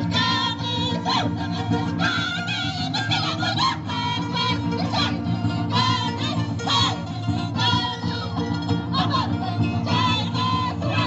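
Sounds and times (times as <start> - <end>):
high-pitched singing: 0.0 - 11.0
instrumental accompaniment: 0.0 - 11.0.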